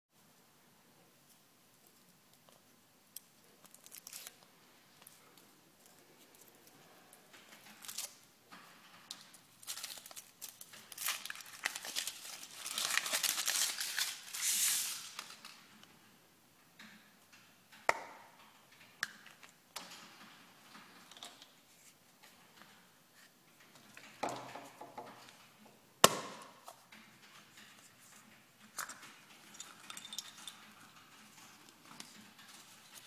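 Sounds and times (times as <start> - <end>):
foil wrapper crinkling: 3.6 - 4.5, 9.6 - 15.4.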